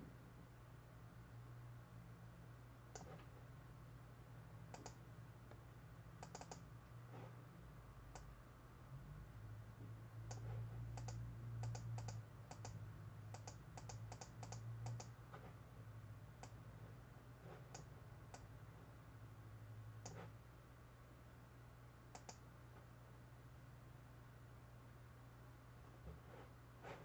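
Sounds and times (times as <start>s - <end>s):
steady low hum: 0.0s - 27.0s
computer mouse clicks: 2.9s - 3.3s, 4.7s - 5.6s, 6.2s - 7.0s, 8.1s - 8.3s, 10.3s - 15.6s, 16.4s - 16.6s, 17.5s - 18.5s, 20.0s - 20.4s, 22.1s - 22.5s.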